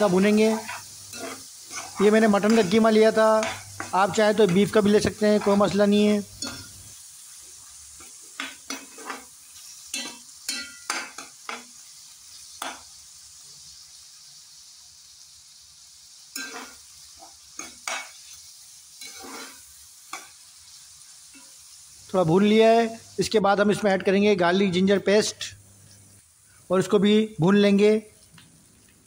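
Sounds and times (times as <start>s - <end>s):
meat and onions sizzling in oil: 0.0s - 29.0s
metal spatula scraping pot: 0.5s - 5.7s, 6.4s - 6.8s, 8.0s - 9.3s, 16.3s - 18.1s, 19.0s - 19.6s.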